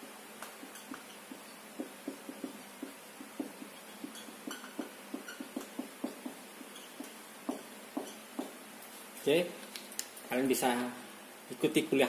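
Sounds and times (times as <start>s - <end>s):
marker squeaking on whiteboard: 0.6s - 8.5s.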